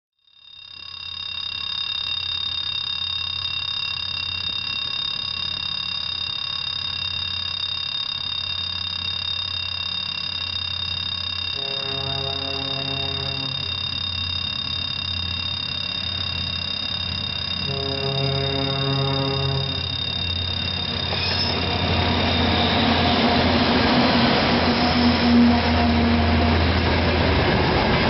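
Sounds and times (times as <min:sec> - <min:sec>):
level crossing alarm tone: 0:00.2 - 0:27.0
diesel locomotive engine rumble: 0:09.5 - 0:28.0.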